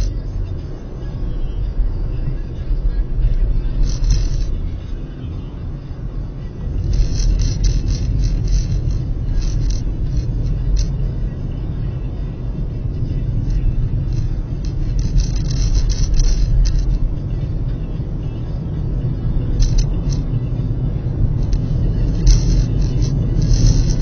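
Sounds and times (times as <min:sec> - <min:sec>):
car engine and road rumble: 0:00.0 - 0:24.0
light ticks and rattles: 0:03.3 - 0:04.9, 0:05.8 - 0:17.8, 0:18.8 - 0:24.0.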